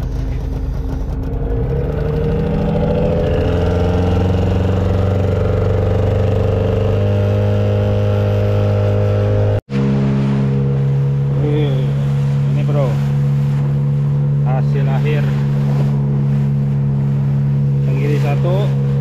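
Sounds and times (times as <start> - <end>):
boat wake washing: 0.0 - 19.0
outboard motor running: 0.0 - 19.0.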